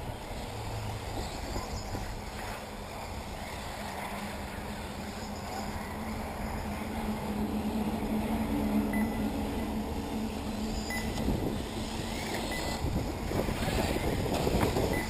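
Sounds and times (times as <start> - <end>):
low hum: 0.0 - 15.0
wind on microphone: 5.6 - 15.0
short high beeps: 8.9 - 9.3, 10.9 - 11.2, 12.5 - 12.8.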